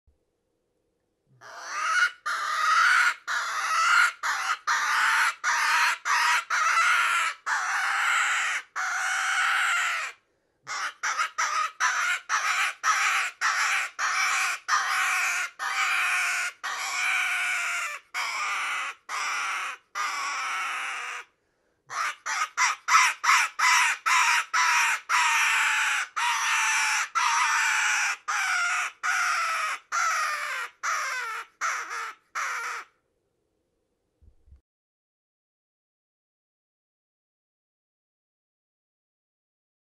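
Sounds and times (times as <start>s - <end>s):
rabbit distress call squealing: 1.4s - 21.3s, 21.9s - 32.9s.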